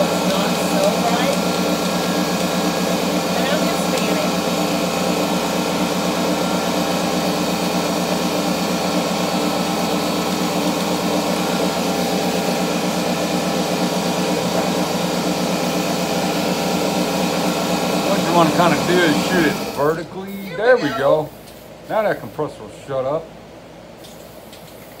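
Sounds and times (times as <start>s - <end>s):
air compressor motor drone: 0.0s - 22.0s.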